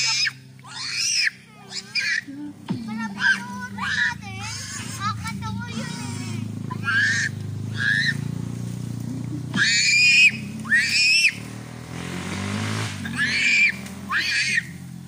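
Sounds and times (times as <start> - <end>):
child squealing: 0.0 - 2.3, 3.0 - 8.3, 9.5 - 11.5, 13.0 - 14.8
steady low hum: 1.3 - 15.0.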